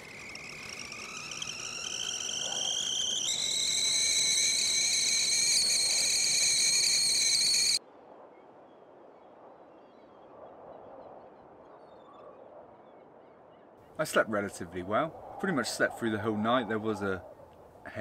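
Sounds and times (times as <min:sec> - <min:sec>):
kettle whistling: 0:00.0 - 0:07.8.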